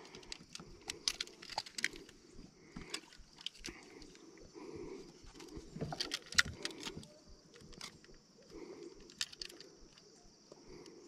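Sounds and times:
fishing gear clicking and rattling: 0:00.0 - 0:11.0.

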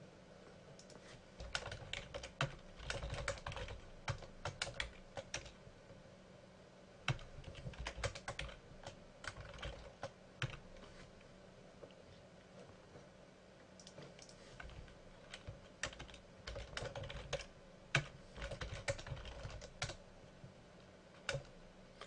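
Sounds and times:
typing on computer keyboard: 0:00.8 - 0:05.6, 0:07.1 - 0:10.6, 0:13.8 - 0:20.0, 0:21.2 - 0:21.5.

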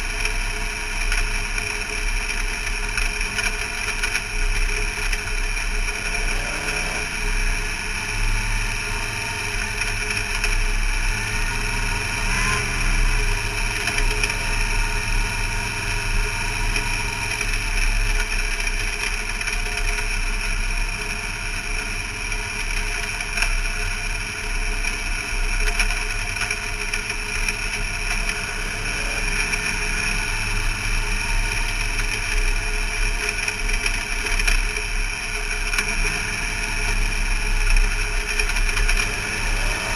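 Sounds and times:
race car engine running: 0:00.0 - 0:39.9.

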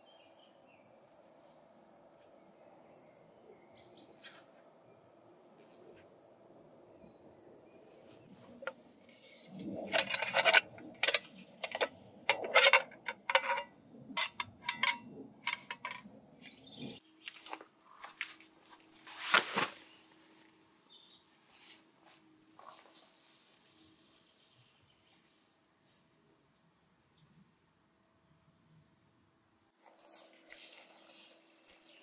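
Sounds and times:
gear rustling and clinking: 0:08.6 - 0:16.1.

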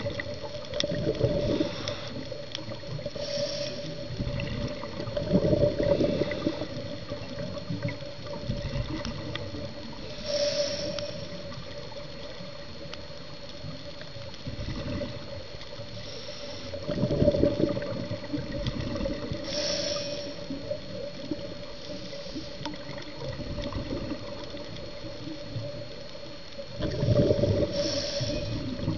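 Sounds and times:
exhaled bubbles rumbling underwater: 0:00.0 - 0:28.9
steady hum: 0:00.0 - 0:28.9
regulator inhalation hiss: 0:01.2 - 0:04.6, 0:05.8 - 0:07.8, 0:10.0 - 0:11.8, 0:15.7 - 0:17.0, 0:19.2 - 0:23.3, 0:27.0 - 0:28.9.

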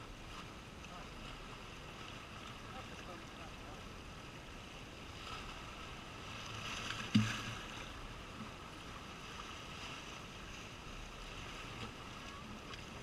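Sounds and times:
waves washing over rocks: 0:00.0 - 0:13.0
low thump: 0:07.1 - 0:07.7.

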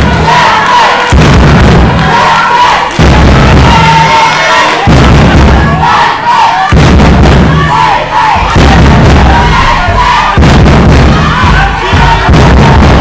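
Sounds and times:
crowd shouting and cheering: 0:00.0 - 0:13.0
heavy low thumping: 0:01.1 - 0:04.1, 0:04.8 - 0:06.0, 0:06.6 - 0:13.0.

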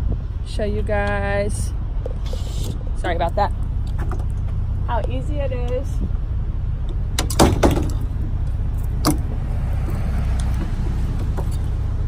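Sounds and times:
wind rumble on microphone: 0:00.0 - 0:12.0
tailgate hardware clunking: 0:06.9 - 0:08.1, 0:09.0 - 0:09.4.

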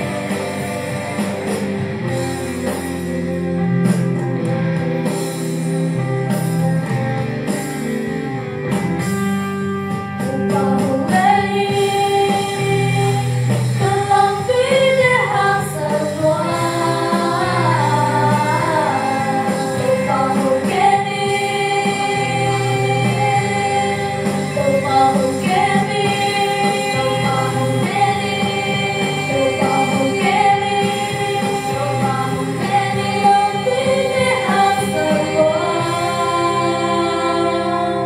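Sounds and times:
women singing gospel song: 0:10.3 - 0:38.0.

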